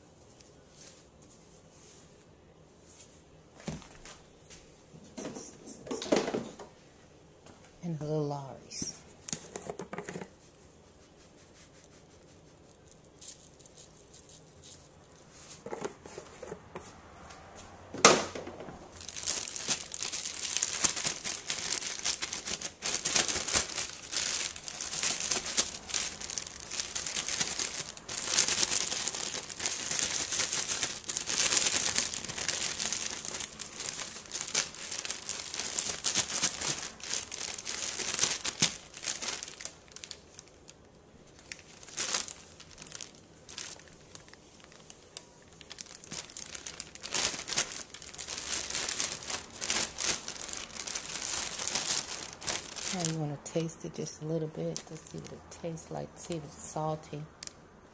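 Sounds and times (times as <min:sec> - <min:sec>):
dry breading rustling: 0:10.3 - 0:16.4, 0:18.9 - 0:55.3.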